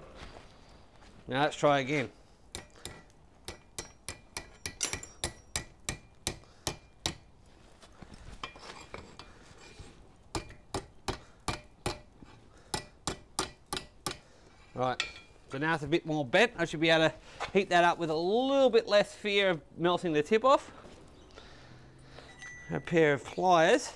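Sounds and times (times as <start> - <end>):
hammer striking hot steel on anvil: 2.5 - 7.3, 10.3 - 14.3, 15.0 - 15.4.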